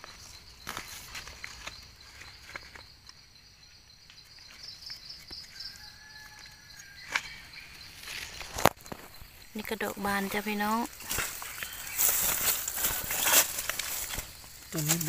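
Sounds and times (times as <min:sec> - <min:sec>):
insects trilling: 0:00.0 - 0:15.0
knife scraping dry soil: 0:11.1 - 0:15.0.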